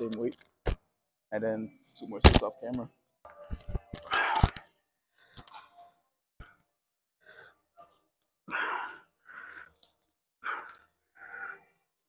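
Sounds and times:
man breathing hard: 7.2 - 12.0.

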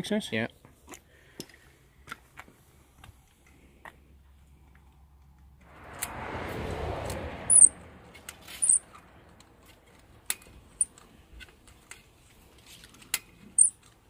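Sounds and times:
brief rush of noise: 5.6 - 9.4
high squeaks: 7.5 - 7.7, 8.3 - 9.0, 13.6 - 13.8.

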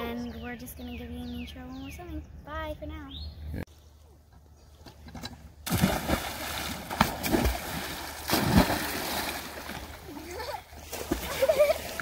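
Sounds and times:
children splashing into pond: 5.6 - 12.0
water splashing: 5.6 - 12.0.

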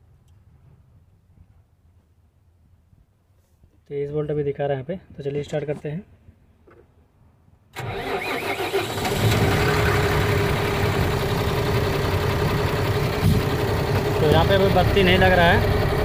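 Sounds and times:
starter motor cranking: 7.8 - 16.0
diesel engine idling: 7.9 - 16.0.

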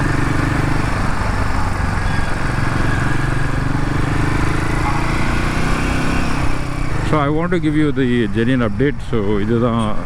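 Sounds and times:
motorcycle engine running: 0.0 - 7.7.

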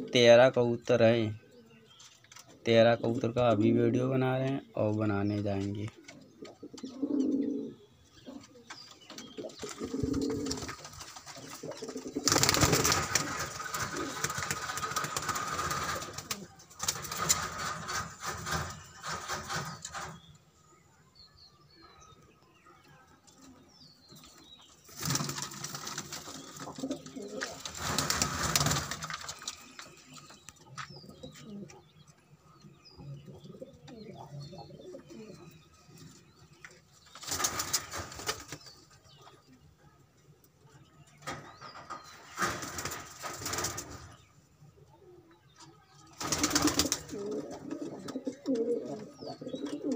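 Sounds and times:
pigeons cooing: 6.0 - 20.2, 26.0 - 32.0, 32.9 - 36.3, 46.2 - 49.9.

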